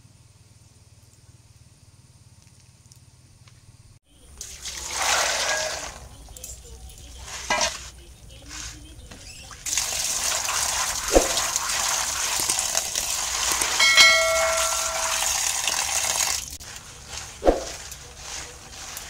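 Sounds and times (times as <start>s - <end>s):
hand stirring peas: 4.2s - 19.0s
tap water pouring onto peas: 4.3s - 6.6s, 9.4s - 19.0s
short metallic ring: 13.8s - 15.5s.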